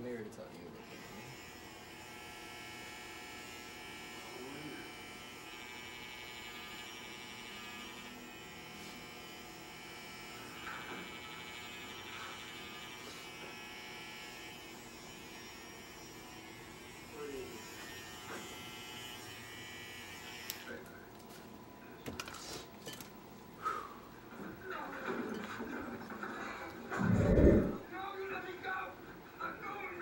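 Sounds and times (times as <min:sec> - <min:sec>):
electric hair trimmer buzzing: 0:00.8 - 0:20.7.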